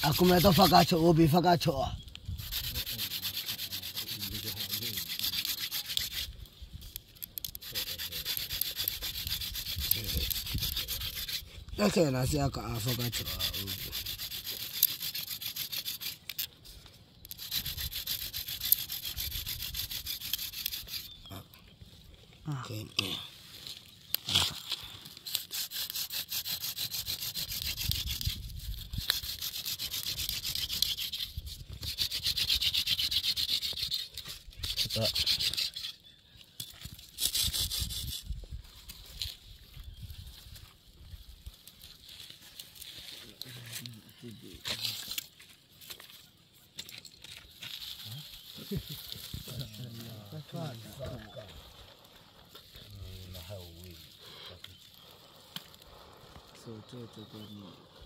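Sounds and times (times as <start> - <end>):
rapid rhythmic scraping: 0.0 - 21.4, 25.2 - 36.0, 37.0 - 38.2.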